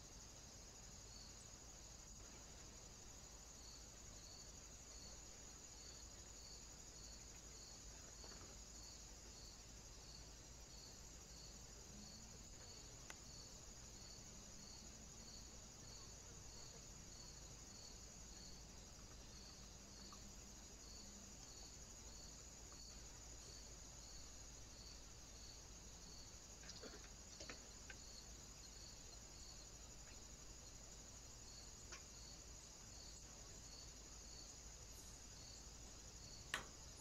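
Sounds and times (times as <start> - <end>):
insect chirping: 0.0 - 37.0
faint click: 13.0 - 13.2, 31.9 - 32.1.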